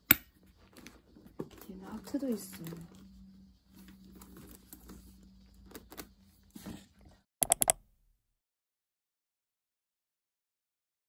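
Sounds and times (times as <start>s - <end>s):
sharp clicks: 7.4s - 7.8s.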